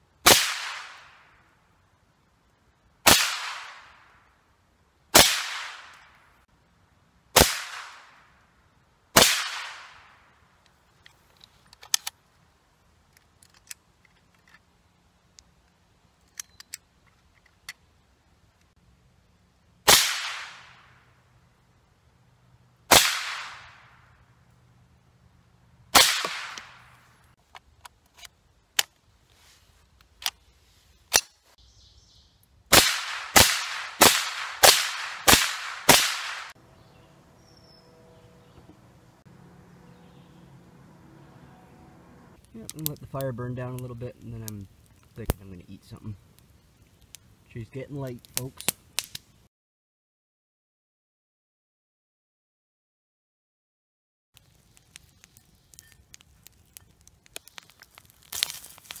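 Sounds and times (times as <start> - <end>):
rifle shots: 0.2 - 1.1, 3.0 - 3.9, 5.1 - 6.0, 7.4 - 8.2, 9.2 - 10.1, 19.9 - 20.8, 22.9 - 23.9, 25.9 - 26.9, 32.7 - 36.6
rifle handling clicks: 10.6 - 12.2, 13.1 - 14.6, 15.4 - 17.8.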